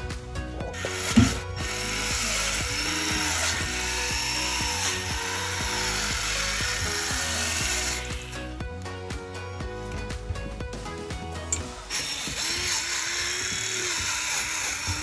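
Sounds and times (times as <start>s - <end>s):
background music with beat: 0.0s - 15.0s
power tool hissing: 0.7s - 8.5s, 11.5s - 15.0s.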